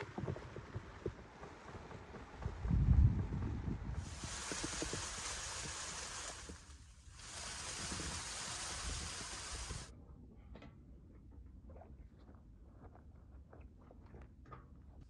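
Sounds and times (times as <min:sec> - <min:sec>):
leaves and branches rustling: 0:04.0 - 0:09.9.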